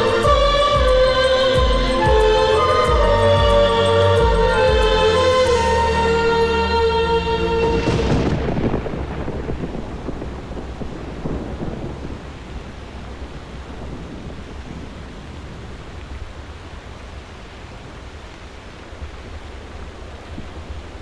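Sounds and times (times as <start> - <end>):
music: 0.0 - 8.7
thunderclap rumbling: 0.0 - 17.3
rain hissing: 0.0 - 21.0.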